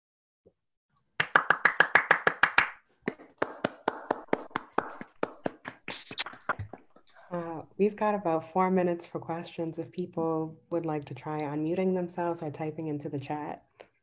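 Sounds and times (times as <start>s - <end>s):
hand clapping: 1.2s - 7.0s.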